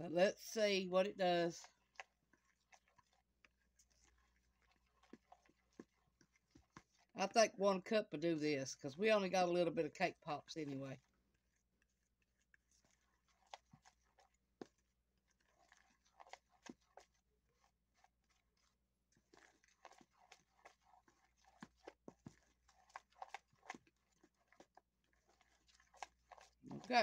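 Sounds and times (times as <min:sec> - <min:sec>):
utensil scraping in plastic bowl: 0:12.4 - 0:27.0.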